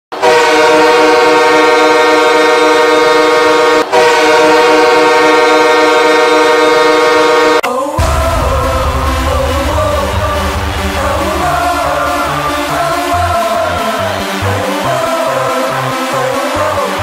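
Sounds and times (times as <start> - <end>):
air horn chord blasts: 0.2 - 16.2
electronic music with bass beat: 8.0 - 17.0.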